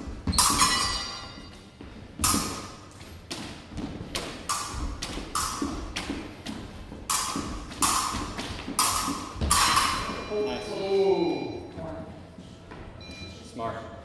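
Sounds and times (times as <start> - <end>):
sneakers stamping on hardwood floor: 1.7 - 9.5.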